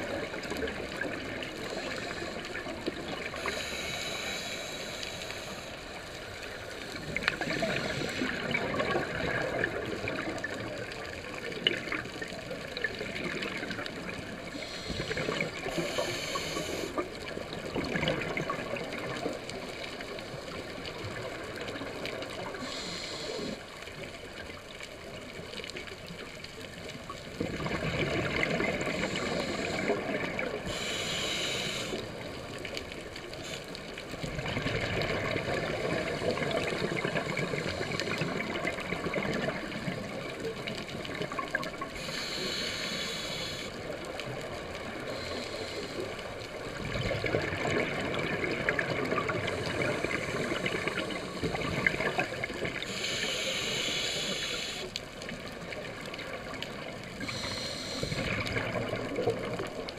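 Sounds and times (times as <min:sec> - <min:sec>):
bubbles rumbling and gurgling: 0:00.0 - 0:04.2, 0:05.8 - 0:54.4, 0:55.0 - 0:59.9
regulator hiss: 0:00.8 - 0:08.6, 0:14.4 - 0:17.3, 0:22.4 - 0:23.7, 0:28.8 - 0:32.5, 0:42.0 - 0:46.7, 0:52.7 - 0:55.9, 0:57.1 - 0:59.0.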